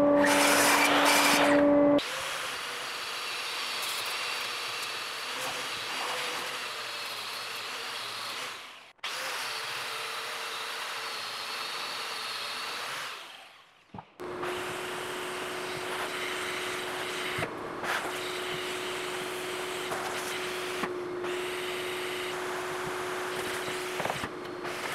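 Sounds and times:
angle grinder grinding wood: 0:00.0 - 0:13.6.

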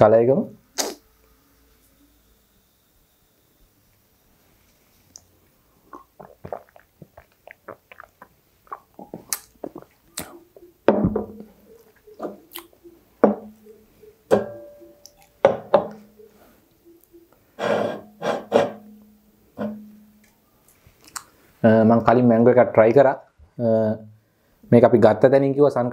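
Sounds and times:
sips and swallows: 0:05.2 - 0:10.4.

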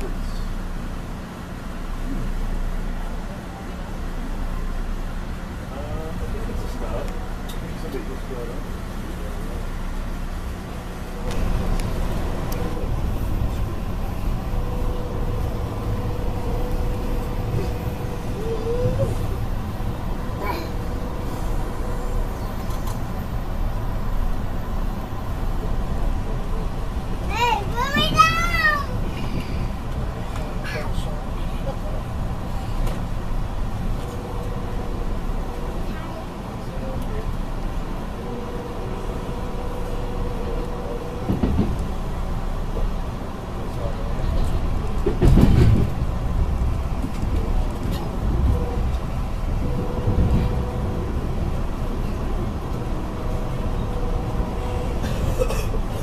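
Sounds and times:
train car rumbling: 0:00.0 - 0:56.0
train bump: 0:27.1 - 0:31.1, 0:38.2 - 0:43.0, 0:43.7 - 0:56.0.

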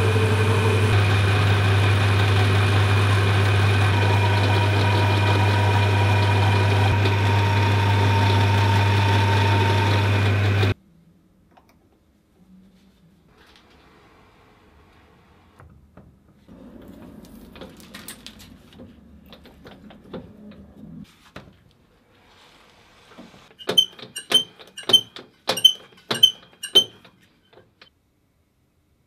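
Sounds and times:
die cutting thread scraping grind: 0:00.9 - 0:10.8.

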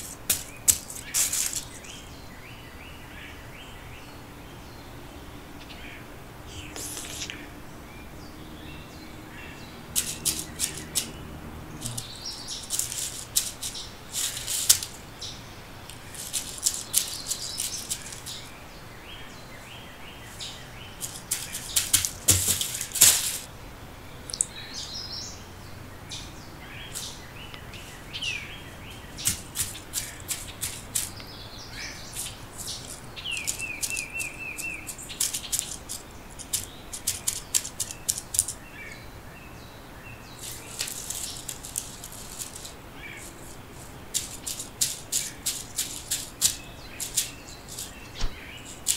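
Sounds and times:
feet crackling through dry leaves: 0:00.0 - 0:02.0, 0:09.3 - 0:18.6, 0:20.1 - 0:23.5, 0:26.7 - 0:38.6, 0:40.3 - 0:48.9
birds chirping: 0:00.0 - 0:48.9.

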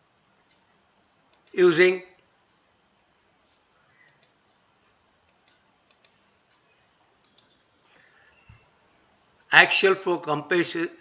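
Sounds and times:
faint short clicks: 0:05.2 - 0:06.2, 0:07.2 - 0:08.6.

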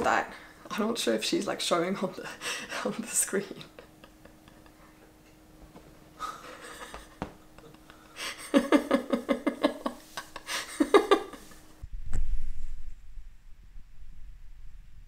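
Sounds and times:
woman laughing softly: 0:02.2 - 0:05.4, 0:06.1 - 0:11.8.

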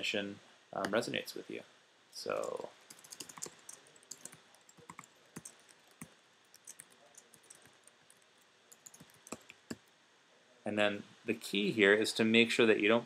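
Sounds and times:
keyboard typing clicks: 0:02.4 - 0:09.9.

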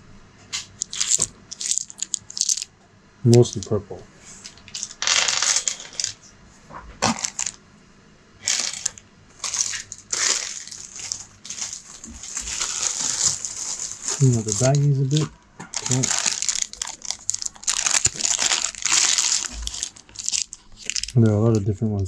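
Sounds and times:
game chips clicking: 0:00.8 - 0:02.7
plastic bag crinkling: 0:00.8 - 0:02.7, 0:04.4 - 0:06.2, 0:07.0 - 0:07.6, 0:08.4 - 0:21.7.

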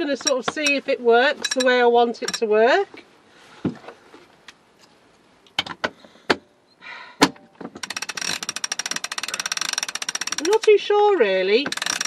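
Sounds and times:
winch pawls ratcheting: 0:01.4 - 0:02.5, 0:07.8 - 0:12.0
winch handle knocks and clicks: 0:07.2 - 0:10.8, 0:11.6 - 0:12.0.

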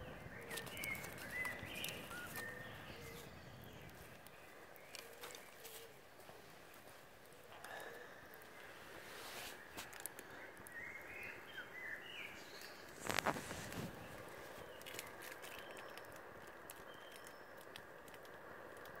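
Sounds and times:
bird chirps: 0:00.0 - 0:06.0, 0:09.5 - 0:18.1
wood fire crackling: 0:12.6 - 0:19.0.

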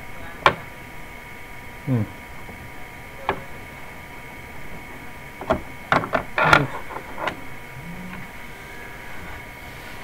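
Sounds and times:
steady high hum: 0:00.0 - 0:10.0
sharp clicks and knocks: 0:05.4 - 0:07.4.

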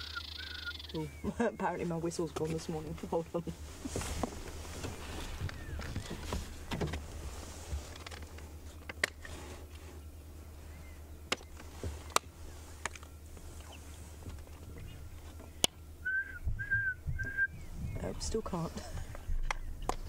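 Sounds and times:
faint bird calls: 0:00.0 - 0:02.0, 0:04.8 - 0:06.7, 0:09.9 - 0:20.0
low steady rumble: 0:00.0 - 0:20.0
handling clicks and knocks: 0:03.9 - 0:07.1, 0:07.8 - 0:09.3.

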